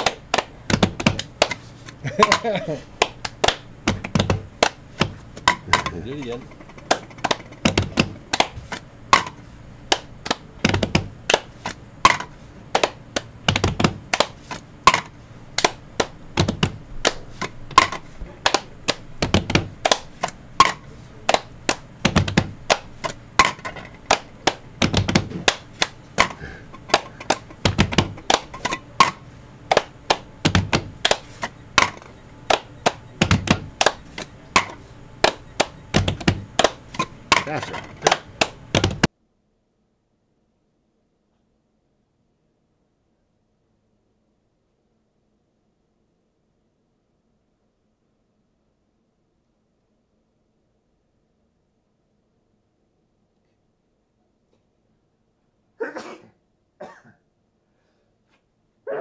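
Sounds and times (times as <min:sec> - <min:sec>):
hand claps and taps on bench: 0:00.0 - 0:39.1.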